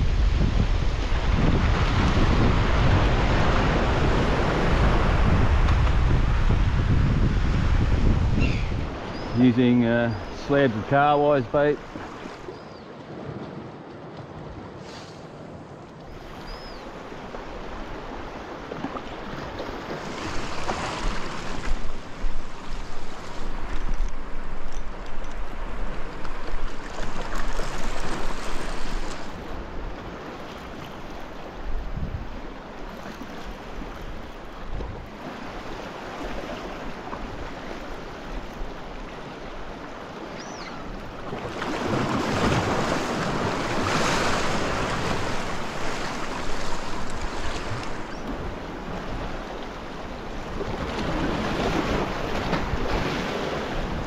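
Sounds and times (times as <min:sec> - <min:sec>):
wind buffeting microphone: 0:00.0 - 0:10.0, 0:31.6 - 0:32.4
waves breaking on rocks: 0:08.8 - 0:16.4, 0:17.0 - 0:31.7, 0:34.9 - 0:54.0.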